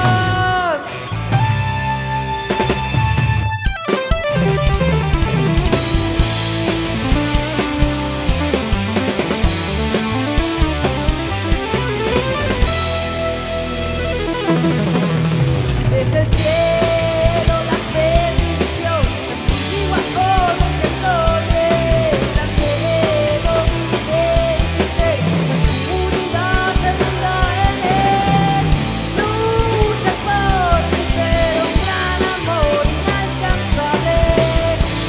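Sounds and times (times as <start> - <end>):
bending lead guitar melody: 0.0 - 35.0
rock band playing: 0.0 - 35.0
drum kit kick and snare: 2.6 - 13.2.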